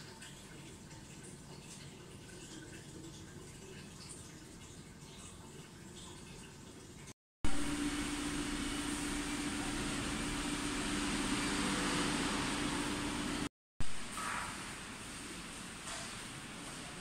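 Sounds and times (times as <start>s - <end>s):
mechanical running noise with hum: 7.4s - 15.6s.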